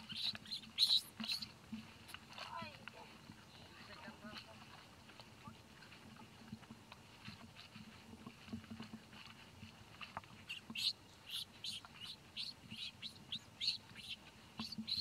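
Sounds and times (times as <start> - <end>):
short high animal chirps: 0.1 - 1.5, 10.5 - 15.0.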